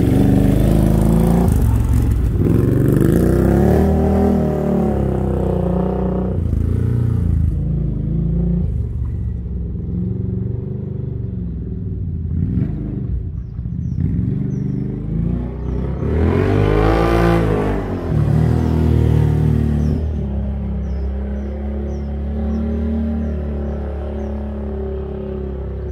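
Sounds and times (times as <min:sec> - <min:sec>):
atv engine revving: 0:00.0 - 0:25.9.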